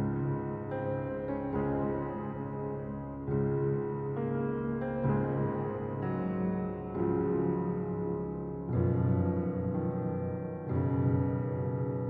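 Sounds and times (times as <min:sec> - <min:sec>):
soft piano chords: 0:00.0 - 0:12.0.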